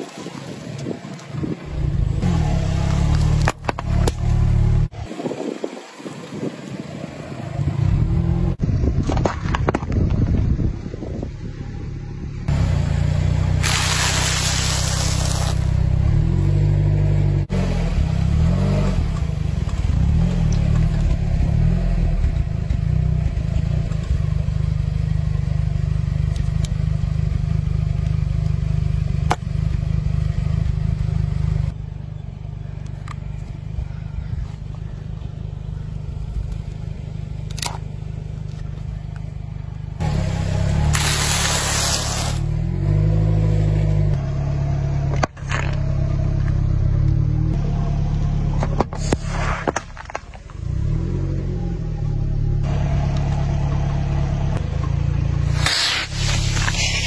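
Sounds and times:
car engine rumbling: 0:00.0 - 0:57.0
loud hiss: 0:13.6 - 0:15.7, 0:40.9 - 0:42.5, 0:55.5 - 0:57.0.

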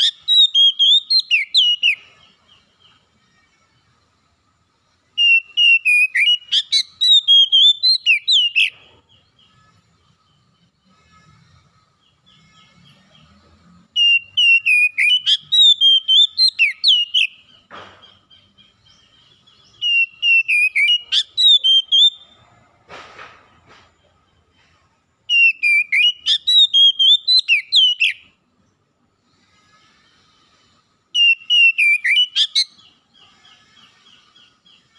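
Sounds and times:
bird singing whistled phrases: 0:00.0 - 0:02.1, 0:05.2 - 0:08.7, 0:14.0 - 0:17.4, 0:19.8 - 0:22.3, 0:25.3 - 0:28.2, 0:31.2 - 0:32.8.

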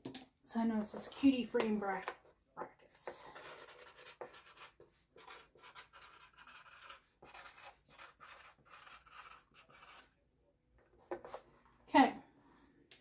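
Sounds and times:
pen scratching on cardboard: 0:03.3 - 0:10.1.

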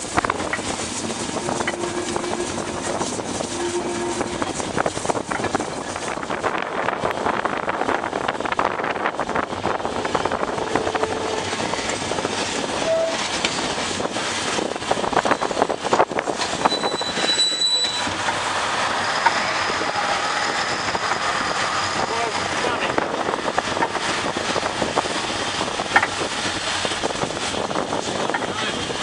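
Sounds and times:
train wheels clattering over rail joints: 0:00.0 - 0:01.8, 0:04.4 - 0:10.6, 0:11.4 - 0:19.9, 0:20.5 - 0:29.0
wheel squeal: 0:16.6 - 0:22.9.

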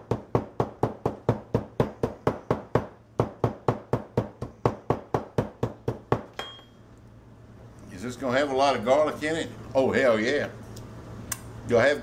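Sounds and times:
meat mallet pounding garlic: 0:00.0 - 0:06.6.

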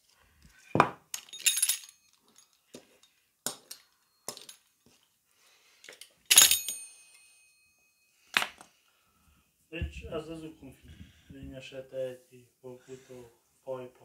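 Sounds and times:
metal utensils clinking on table: 0:06.3 - 0:07.5.

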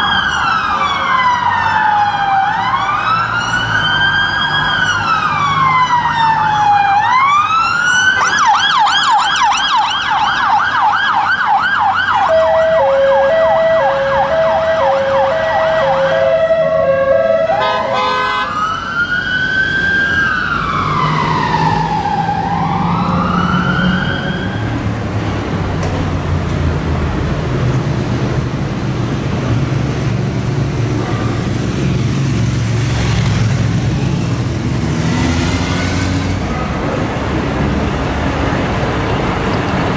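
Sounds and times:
two-tone hi-lo siren: 0:00.0 - 0:24.8
wailing and yelping siren: 0:00.0 - 0:24.9
traffic noise: 0:00.0 - 0:39.9.

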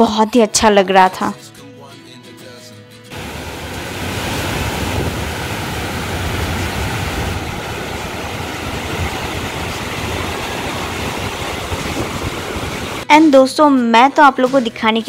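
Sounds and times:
waterfall rushing over rocks: 0:03.1 - 0:13.0
wind rumbling on microphone: 0:03.2 - 0:13.0.

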